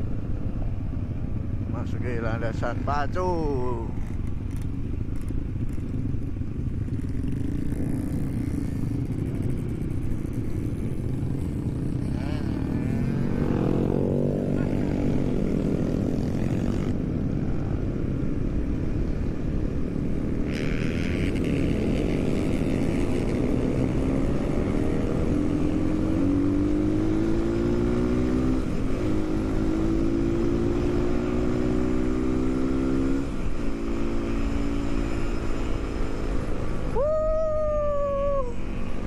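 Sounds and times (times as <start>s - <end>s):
motorcycle engine accelerating: 3.2s - 18.6s, 19.9s - 39.0s.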